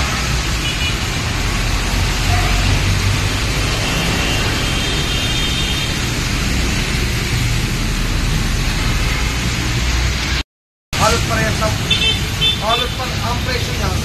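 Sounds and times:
diesel trucks rumbling past: 0:00.0 - 0:10.4
tyres hissing on wet pavement: 0:00.0 - 0:10.4, 0:11.0 - 0:14.0.

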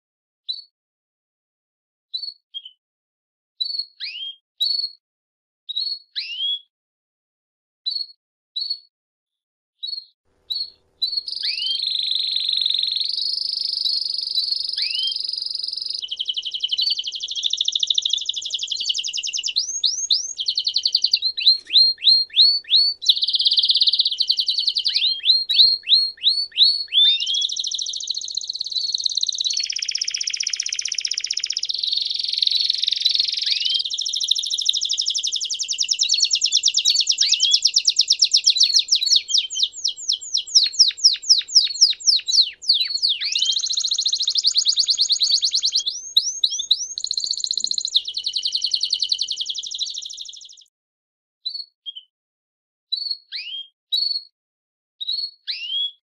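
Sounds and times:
canary singing trills: 0:09.8 - 0:50.7.

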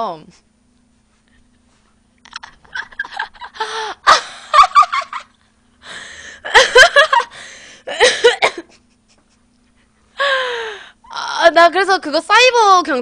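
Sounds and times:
woman laughing: 0:02.2 - 0:05.4, 0:06.4 - 0:10.6.

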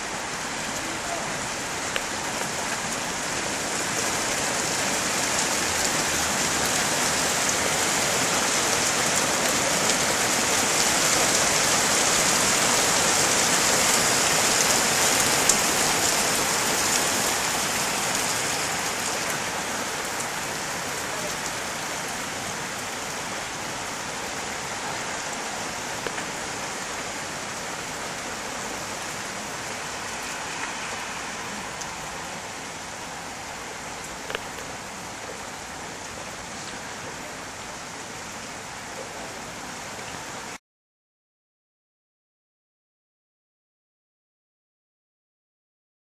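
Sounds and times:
rain falling: 0:00.0 - 0:40.6.

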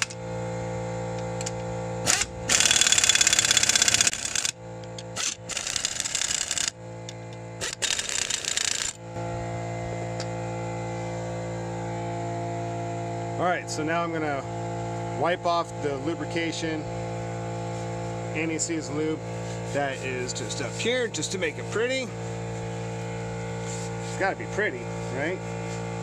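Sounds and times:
steady hum: 0:00.0 - 0:26.0
impact wrench hammering: 0:01.1 - 0:09.0.

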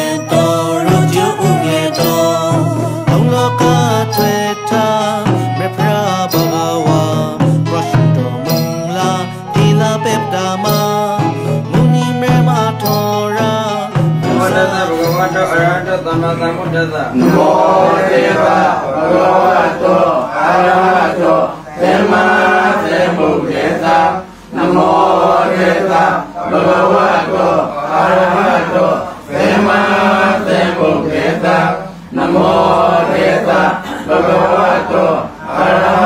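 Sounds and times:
man chanting: 0:00.0 - 0:19.0.

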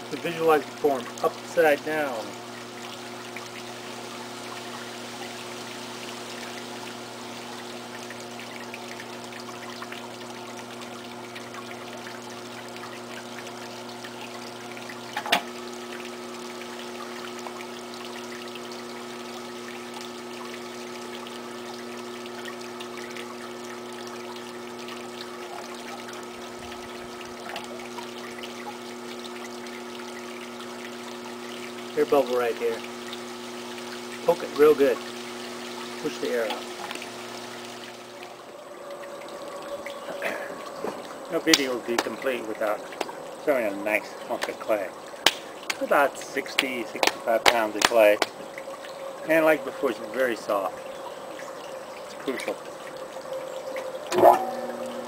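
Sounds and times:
potter's wheel motor humming: 0:53.2 - 0:55.0.

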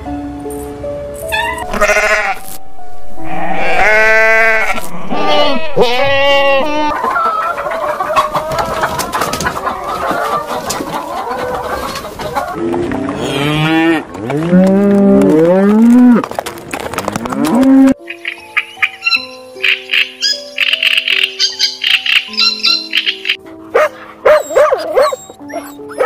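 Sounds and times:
cows mooing: 0:01.6 - 0:02.4, 0:03.2 - 0:06.9, 0:12.5 - 0:16.3, 0:17.0 - 0:18.0
hen clucking: 0:03.2 - 0:14.4, 0:17.4 - 0:26.0.

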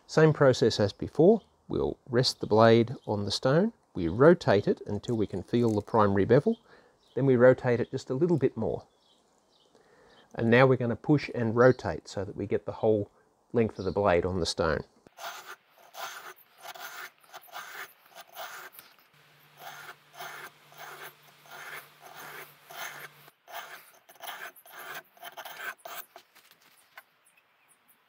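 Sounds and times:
blade scraping on oilstone: 0:15.2 - 0:26.3.

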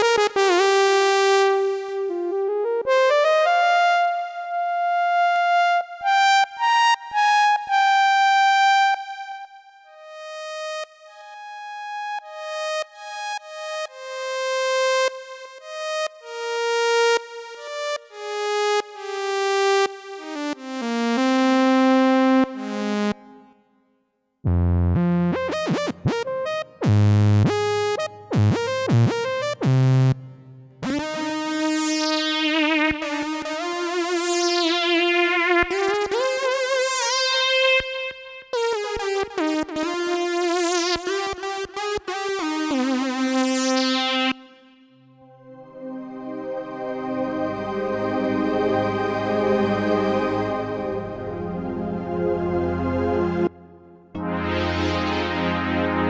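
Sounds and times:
synth with sweeping filter: 0:00.0 - 0:23.6, 0:24.5 - 0:56.0
buzzy synth lead notes: 0:20.8 - 0:23.4, 0:24.5 - 0:44.4, 0:54.2 - 0:56.0
deep synth bass: 0:24.5 - 0:31.1, 0:54.2 - 0:56.0.

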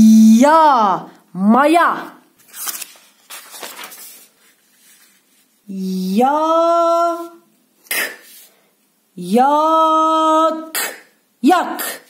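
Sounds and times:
person sounding out a word: 0:00.0 - 0:02.1, 0:09.2 - 0:12.0
paper page rustling: 0:02.4 - 0:05.7.

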